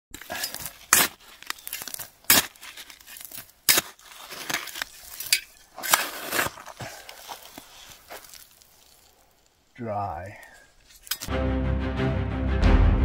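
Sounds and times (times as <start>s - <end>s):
shovel scraping dirt and stones: 0.1s - 11.3s
shovel stabbing gravelly soil: 0.2s - 9.3s.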